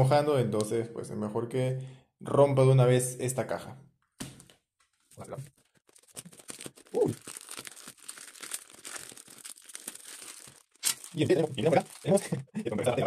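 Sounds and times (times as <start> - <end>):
plastic and paper crinkling: 4.9 - 12.5
parcel being cut and torn open: 9.8 - 11.2.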